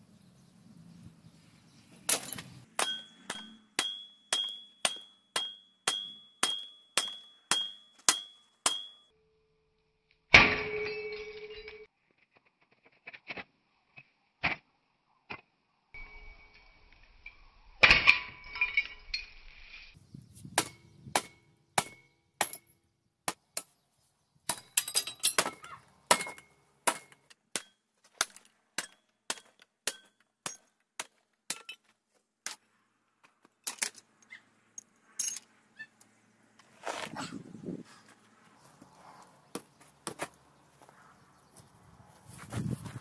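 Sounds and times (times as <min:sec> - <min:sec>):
metal parts clinking and knocking: 0:24.6 - 0:25.6, 0:33.6 - 0:34.1, 0:34.8 - 0:35.5.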